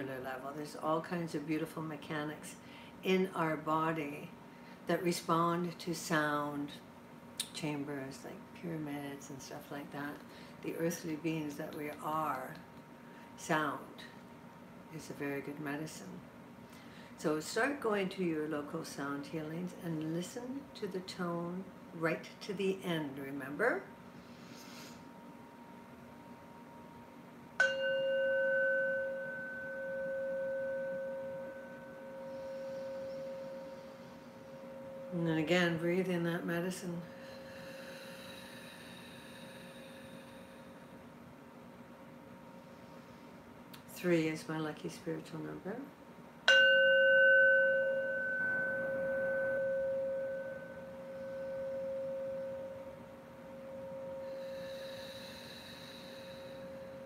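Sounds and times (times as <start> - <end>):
metal singing bowl ringing: 27.6 - 38.6, 46.4 - 57.0.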